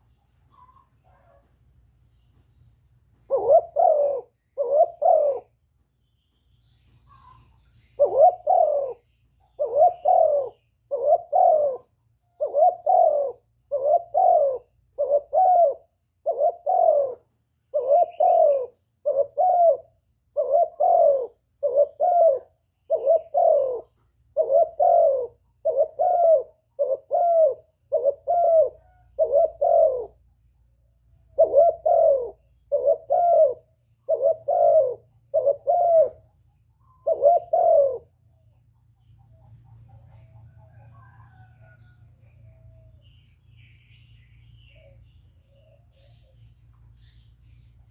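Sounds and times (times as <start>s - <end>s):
dove cooing: 3.1s - 5.6s, 6.9s - 30.3s, 31.0s - 47.7s.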